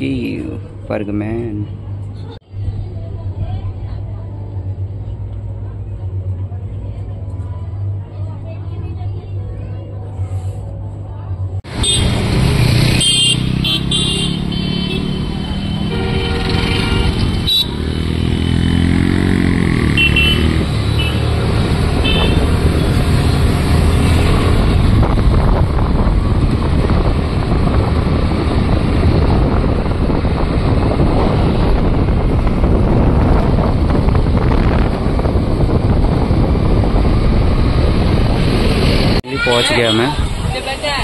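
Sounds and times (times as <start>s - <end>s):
road noise: 0.0s - 41.0s
horn toots: 11.7s - 18.4s, 19.7s - 21.3s, 22.0s - 23.0s
scooter engine revving: 11.7s - 39.2s
wind rushing over microphone: 20.5s - 39.3s.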